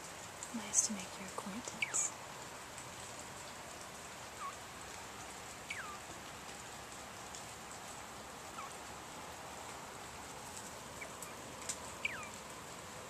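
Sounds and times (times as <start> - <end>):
steady rain hiss: 0.0 - 13.0
quail soft whistled calls: 1.8 - 2.1, 4.4 - 4.6, 5.6 - 6.1, 8.5 - 8.8, 12.0 - 12.4.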